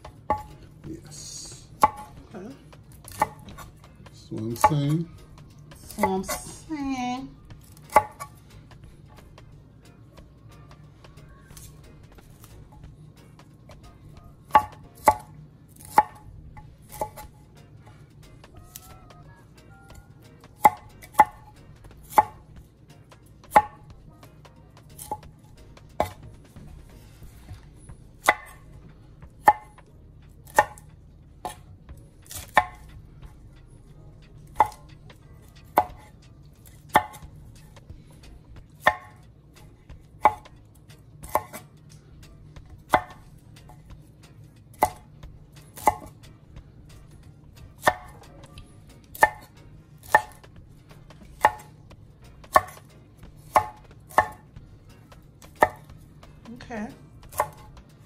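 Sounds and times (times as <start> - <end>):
knife chopping broccoli: 0.0 - 0.7, 1.6 - 2.2, 2.8 - 5.0, 7.6 - 8.4, 11.6 - 17.5, 20.4 - 22.5, 23.1 - 23.9, 24.8 - 26.5, 27.4 - 28.7, 29.3 - 32.9, 34.4 - 34.9, 35.5 - 37.9, 38.7 - 39.2, 40.0 - 41.7, 42.6 - 44.1, 44.7 - 46.2, 47.7 - 51.8, 52.4 - 56.3, 57.2 - 57.8.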